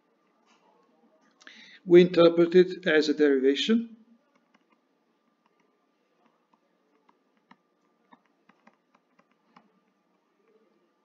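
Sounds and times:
stylus tapping on tablet: 5.4s - 10.0s.

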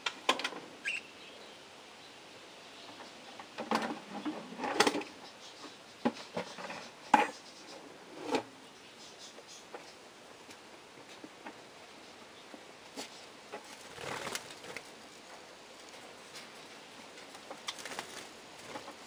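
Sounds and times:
budgerigars chirping: 0.8s - 1.1s.

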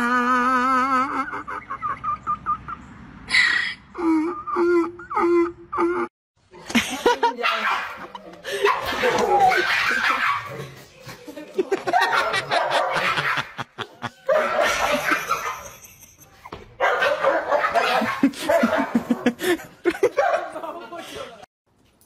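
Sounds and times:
people laughing: 6.6s - 16.4s, 17.8s - 21.5s
dog barking: 7.4s - 10.5s, 11.9s - 13.6s, 14.3s - 15.6s, 16.8s - 19.4s, 20.1s - 20.6s.

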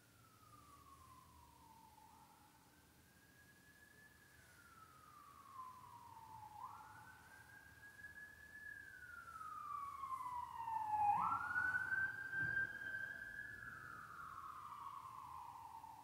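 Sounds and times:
siren wailing: 4.0s - 16.0s.

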